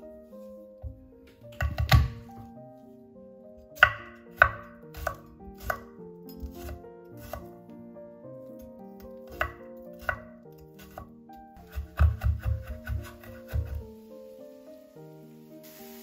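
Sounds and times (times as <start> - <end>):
knife tapping wooden board: 1.5 - 2.2, 9.2 - 13.8
knife slicing garlic: 3.8 - 7.5, 9.0 - 13.9.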